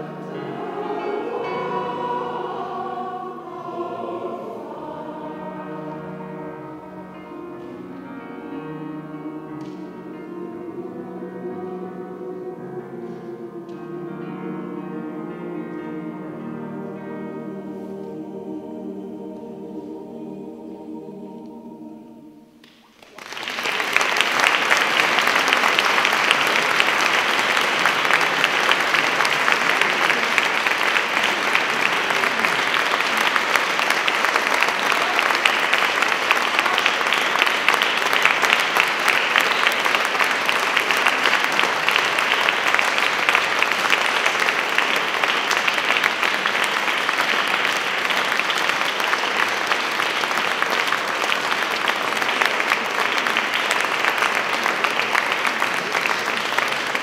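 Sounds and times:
audience applauding: 0:22.6 - 0:57.0.

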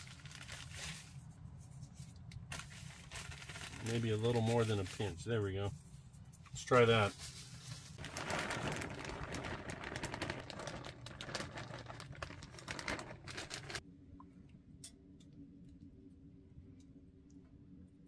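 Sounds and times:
plastic bag crinkling: 0:00.0 - 0:01.3, 0:02.4 - 0:05.3, 0:06.9 - 0:13.8
low steady hum: 0:00.0 - 0:18.0.

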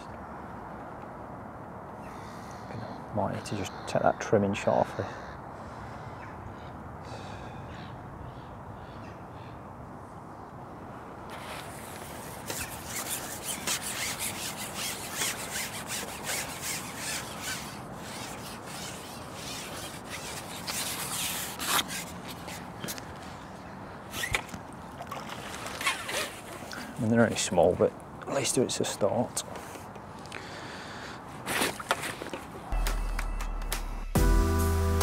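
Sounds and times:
outdoor background hiss: 0:00.0 - 0:35.0
crows cawing: 0:02.0 - 0:09.6.

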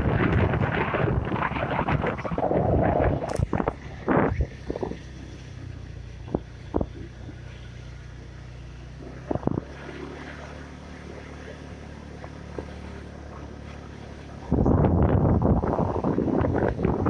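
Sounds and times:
wind buffeting microphone: 0:00.0 - 0:07.5, 0:09.2 - 0:09.8, 0:13.4 - 0:17.0
vehicle engine humming: 0:00.0 - 0:17.0.

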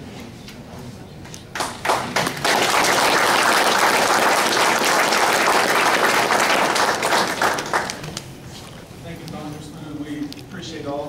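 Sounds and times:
guests applauding: 0:01.5 - 0:08.2.

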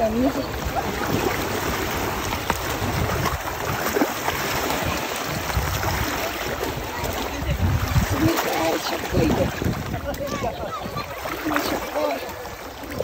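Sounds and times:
low rumble on microphone: 0:00.0 - 0:08.4
water splashing around wading dog: 0:00.0 - 0:13.0.

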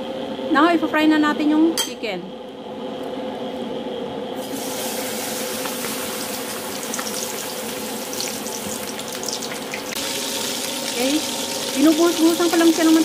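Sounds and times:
chicken sizzling in hot oil: 0:04.4 - 0:13.0.

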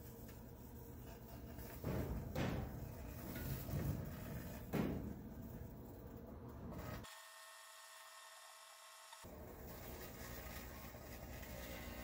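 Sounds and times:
microwave oven humming: 0:06.2 - 0:12.0.

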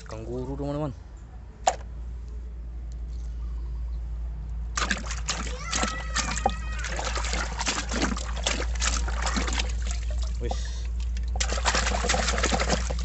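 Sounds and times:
water splashing in a plastic tub: 0:04.7 - 0:13.0
hand scrubbing toy underwater: 0:04.8 - 0:13.0.

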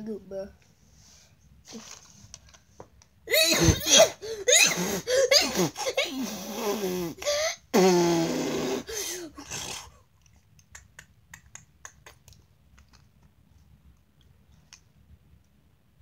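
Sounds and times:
child making silly mouth noises: 0:03.3 - 0:07.2.

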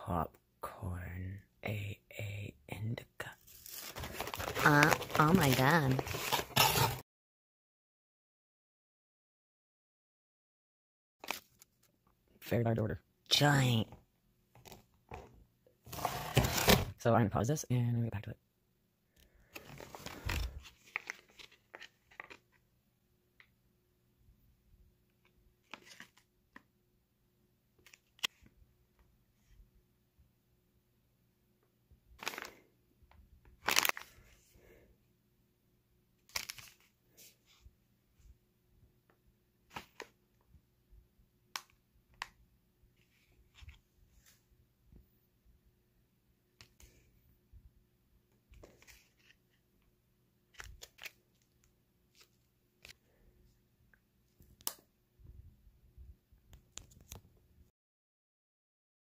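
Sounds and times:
packaging pouches crinkling: 0:03.4 - 0:07.0, 0:19.6 - 0:22.4, 0:32.2 - 0:32.7, 0:33.6 - 0:34.2, 0:36.3 - 0:36.8.

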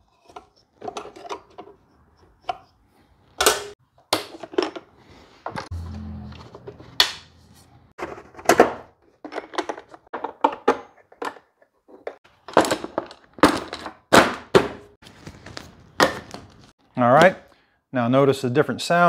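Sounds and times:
clunks and rattles of parts handled: 0:00.0 - 0:02.8, 0:03.4 - 0:05.7, 0:08.0 - 0:16.7.

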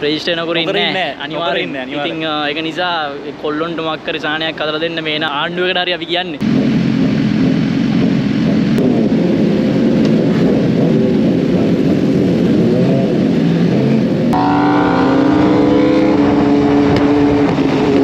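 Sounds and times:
motorcycles idling and revving: 0:00.0 - 0:18.0
motorcycle engine at steady revs: 0:06.4 - 0:18.0.

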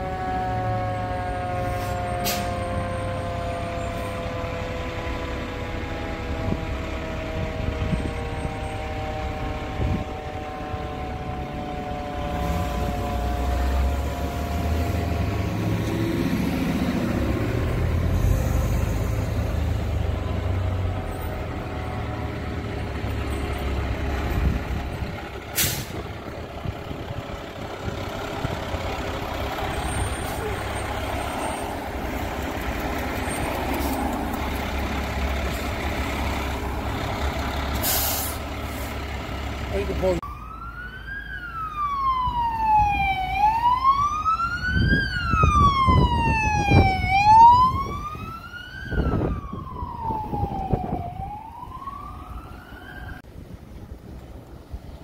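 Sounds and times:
fire engine siren winding down: 0:00.0 - 0:53.3
diesel engine rumble: 0:00.0 - 0:55.0
air brakes hissing: 0:01.7 - 0:02.6, 0:25.5 - 0:26.1, 0:37.7 - 0:39.0.

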